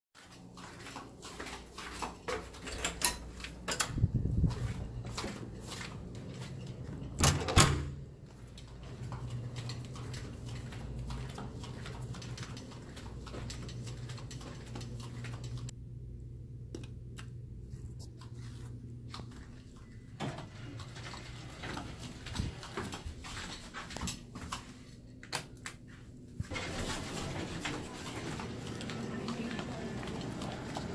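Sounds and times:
faint footsteps on carpet: 0.2s - 2.6s, 3.4s - 7.0s, 8.1s - 15.7s, 21.4s - 25.0s
door slamming shut and latching: 7.2s - 8.0s.

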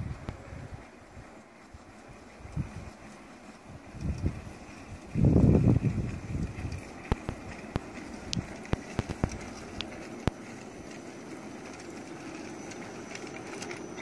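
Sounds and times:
model train motors whirring: 0.0s - 14.0s
sharp clicks from running gear: 2.4s - 5.2s, 5.8s - 14.0s.

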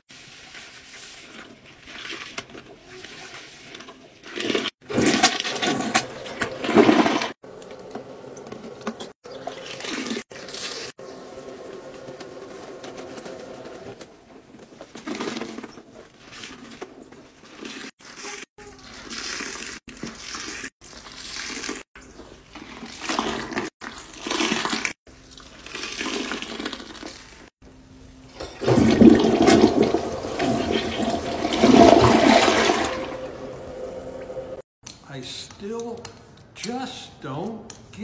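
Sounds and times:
water sloshing in toilet bowl: 0.1s - 7.4s, 15.1s - 27.5s, 28.4s - 34.6s
toilet flushing: 3.5s - 7.4s, 22.5s - 27.3s, 28.3s - 34.6s.

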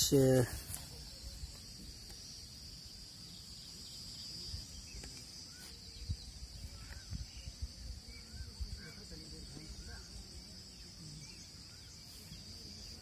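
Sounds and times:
bird chirps: 0.0s - 13.0s
insects chirring: 0.0s - 13.0s
wind rumbling on microphone: 4.4s - 9.0s.

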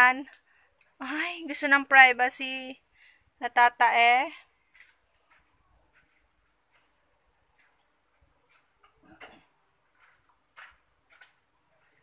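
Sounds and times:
crickets chirping: 0.0s - 12.0s
soft scuffs: 9.9s - 12.0s.

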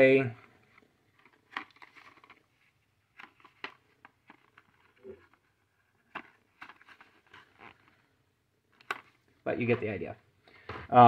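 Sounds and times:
small clicks and taps handling plastic: 3.1s - 8.0s, 8.7s - 9.2s.

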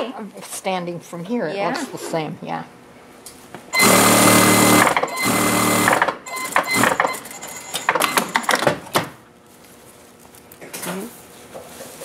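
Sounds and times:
sewing machine stitching: 3.8s - 8.6s.

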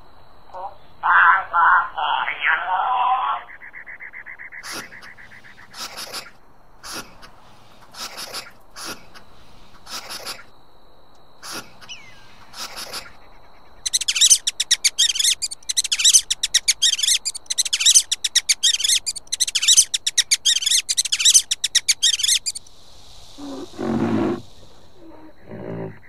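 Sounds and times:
rat squeaking chirps: 3.5s - 7.1s, 11.4s - 22.7s
lizard hissing: 4.5s - 10.5s, 11.4s - 26.0s.

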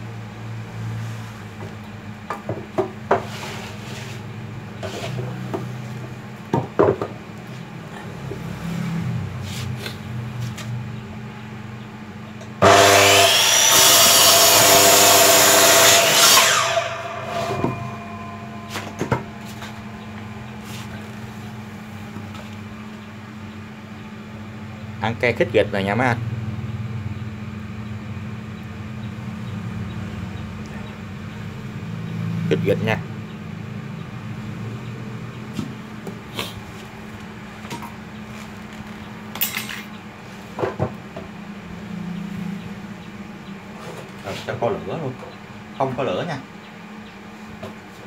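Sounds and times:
miter saw cutting wood: 12.6s - 21.8s.

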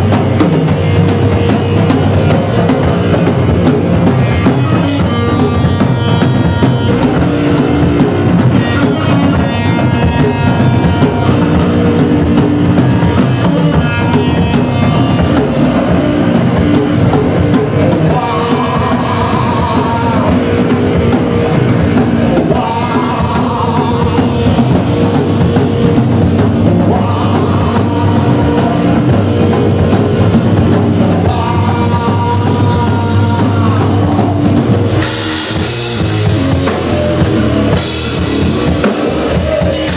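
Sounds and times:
rock band playing live: 0.0s - 39.9s
man singing: 1.8s - 39.9s.

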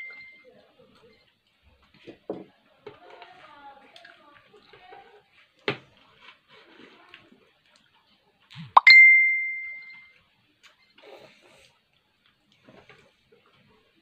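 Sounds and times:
phone notification swoop and ding: 8.8s - 9.9s.

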